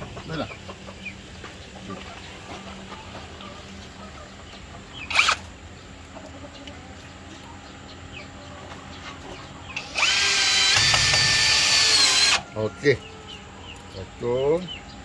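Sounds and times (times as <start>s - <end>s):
power drill driving screw: 5.1s - 5.4s, 9.8s - 12.4s.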